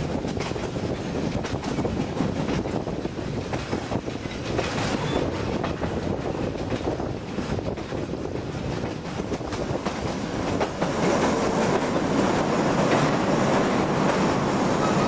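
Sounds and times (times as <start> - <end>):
train rumble: 0.0 - 15.0
wheels clacking over rails: 0.0 - 15.0.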